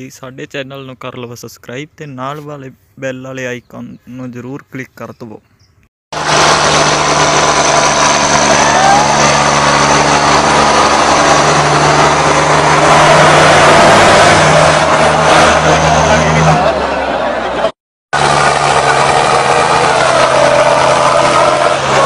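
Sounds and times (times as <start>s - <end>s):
tractor diesel engines droning: 6.2s - 22.0s.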